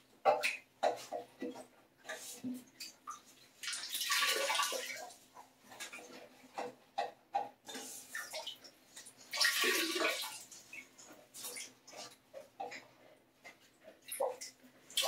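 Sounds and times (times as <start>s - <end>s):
water splashing and trickling: 0.2s - 7.1s, 7.7s - 12.8s.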